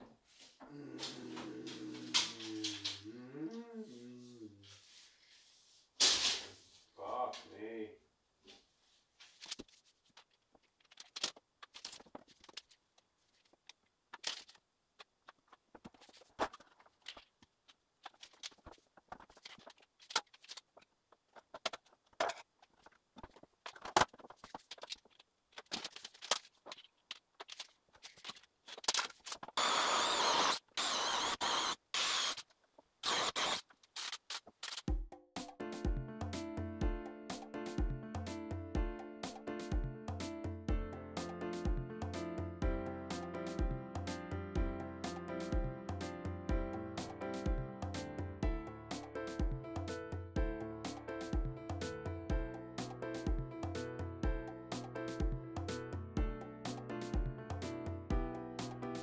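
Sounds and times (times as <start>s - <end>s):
power drill drilling: 29.6s - 32.4s, 33.0s - 33.6s.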